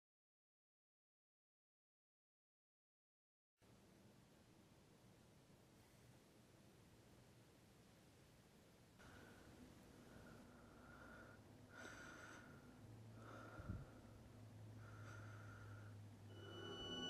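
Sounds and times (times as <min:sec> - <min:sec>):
fast breathing: 0:09.0 - 0:16.8
low hum: 0:09.0 - 0:17.0.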